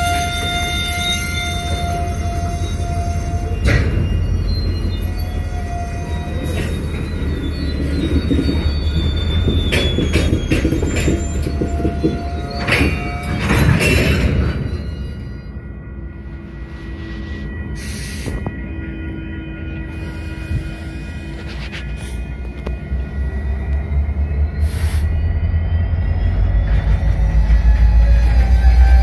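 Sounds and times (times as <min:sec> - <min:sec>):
metallic clanks from train cars: 0:00.0 - 0:15.7
diesel locomotive rumble: 0:00.0 - 0:29.0
high wheel squeal: 0:00.0 - 0:29.0.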